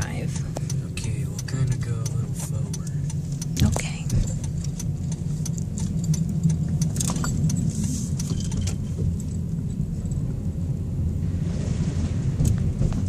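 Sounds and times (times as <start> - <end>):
light clicks and jingling rattles: 0.0 - 10.4
engine and road rumble: 0.0 - 13.0.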